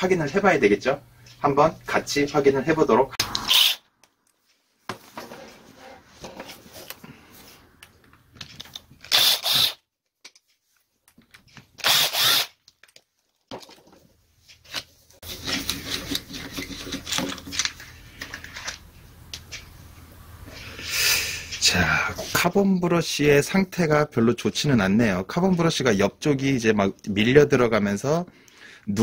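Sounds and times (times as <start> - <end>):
cordless drill spinning screws: 3.3 - 3.8, 9.0 - 9.8, 11.8 - 12.6
parts clattering and rustling: 4.3 - 9.1, 10.0 - 11.8, 12.6 - 19.8.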